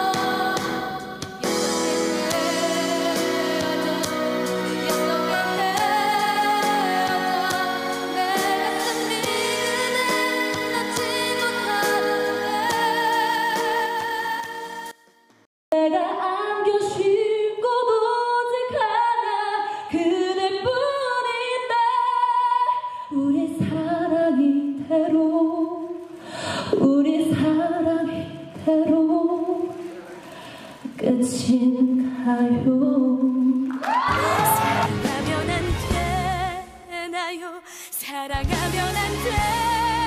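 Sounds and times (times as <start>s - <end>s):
pop song with backing track: 0.0s - 15.0s, 30.3s - 40.0s
woman singing unaccompanied: 26.8s - 29.7s, 30.9s - 40.0s.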